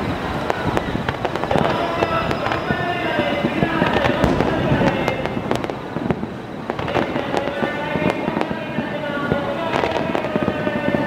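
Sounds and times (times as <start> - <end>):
fireworks barrage noise: 0.0 - 11.0
fireworks bursting and crackling: 0.0 - 11.0.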